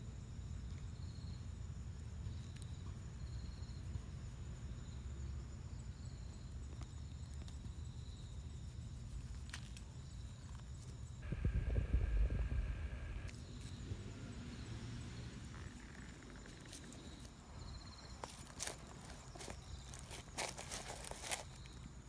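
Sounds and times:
insects chirping: 0.0s - 22.0s
low rumble on microphone: 11.2s - 13.3s.

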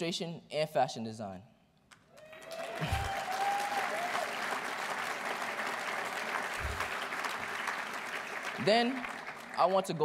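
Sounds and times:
long rising cheer: 2.1s - 7.8s
audience applauding: 2.2s - 10.0s.

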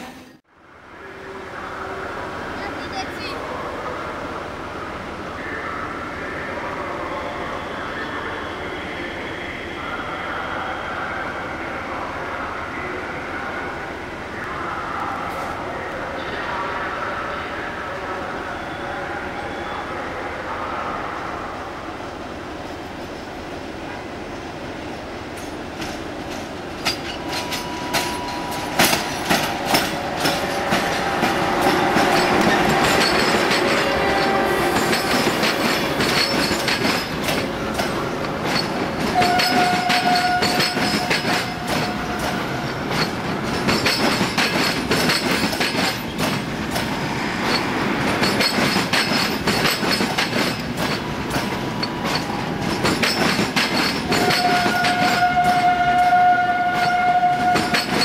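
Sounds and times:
train wheels clicking over rail joints: 25.3s - 58.0s.

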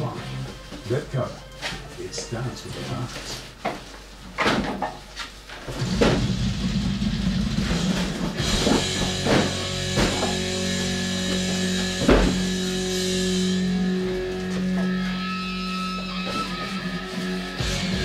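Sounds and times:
rock music over a stereo: 5.7s - 18.0s.

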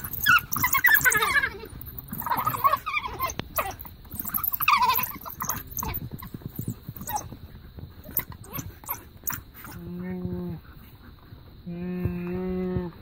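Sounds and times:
wild dogs twittering calls: 0.0s - 7.4s, 8.0s - 9.8s.

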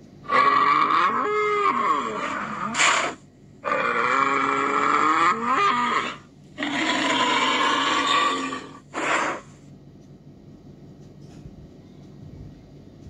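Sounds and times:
bull bellowing through speaker: 0.2s - 9.5s.

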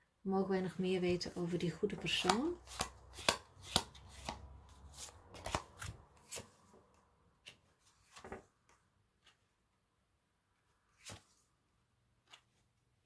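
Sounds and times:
cards snapping while shuffled: 2.2s - 4.4s.

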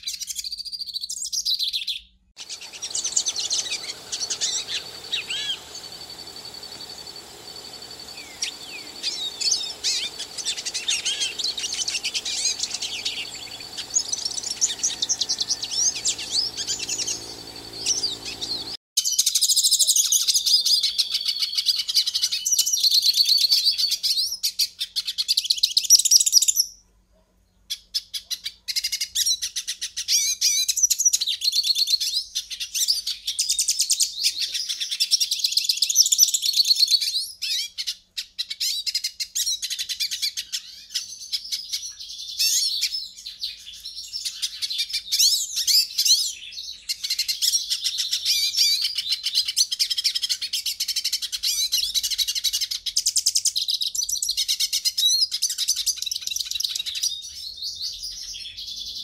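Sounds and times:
finch singing twittering song: 2.4s - 18.8s.

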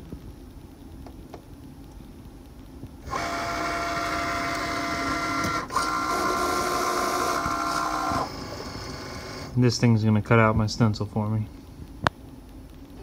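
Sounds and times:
cutting machine motor whine: 3.0s - 9.6s.

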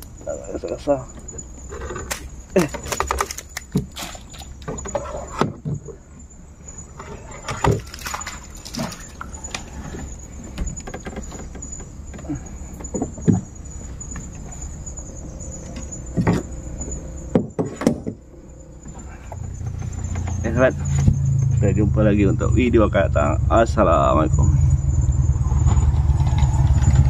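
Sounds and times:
night insects chirring: 0.0s - 27.0s
gear knocking in a boat: 0.7s - 21.5s.

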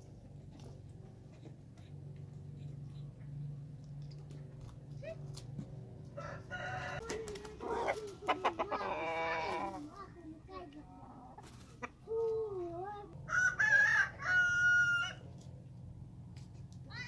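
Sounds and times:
rooster crowing: 6.2s - 7.2s, 13.2s - 15.2s.

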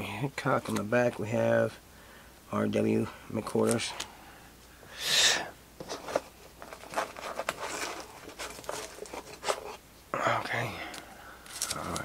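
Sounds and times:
cards clicking and rustling: 5.8s - 9.8s, 10.9s - 12.0s
plastic card sleeve crinkling: 5.8s - 9.8s, 10.9s - 12.0s.

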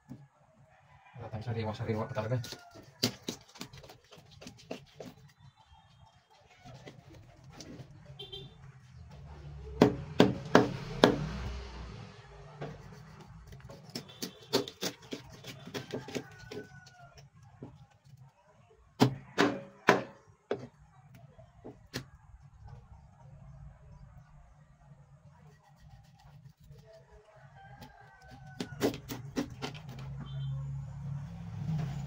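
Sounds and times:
knife chopping on cutting board: 9.8s - 11.4s, 12.6s - 16.6s.

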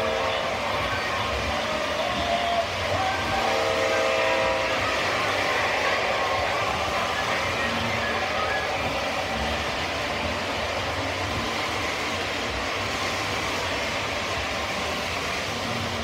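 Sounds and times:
model trains rumbling: 0.0s - 16.0s.

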